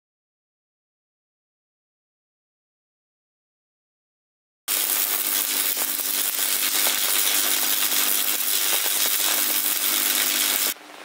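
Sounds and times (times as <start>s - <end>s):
welding arc crackling: 4.7s - 10.8s.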